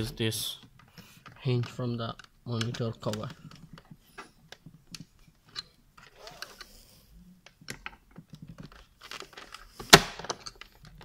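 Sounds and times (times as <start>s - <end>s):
small clicks and scrapes: 0.6s - 11.0s
clip snapping loudly: 9.8s - 10.4s.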